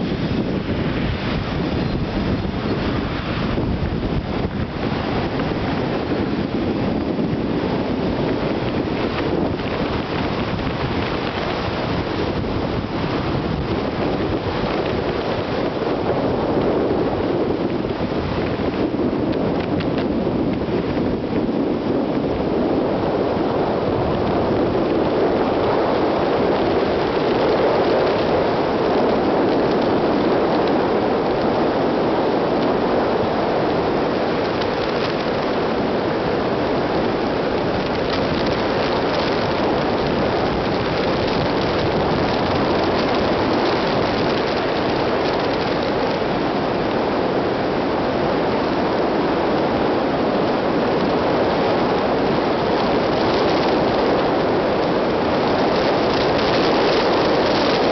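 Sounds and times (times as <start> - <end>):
car tyre and wind noise: 0.0 - 57.9.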